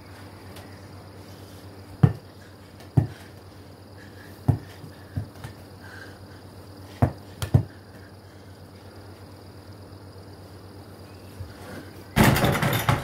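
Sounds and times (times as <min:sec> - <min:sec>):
faint low room hum: 0:00.0 - 0:13.0
foam ball bouncing thumps: 0:02.0 - 0:02.2, 0:02.8 - 0:03.2, 0:04.4 - 0:05.6, 0:07.0 - 0:07.7.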